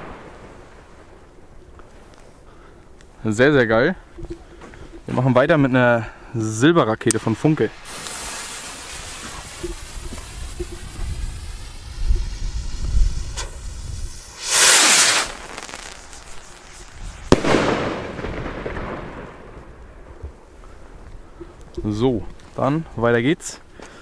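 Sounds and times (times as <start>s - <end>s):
firework bang: 0.0s - 0.8s, 7.8s - 19.7s
fuse hissing and sputtering: 7.0s - 17.3s
hiss of falling sparks: 7.0s - 17.9s
rocket whoosh: 7.1s - 19.8s.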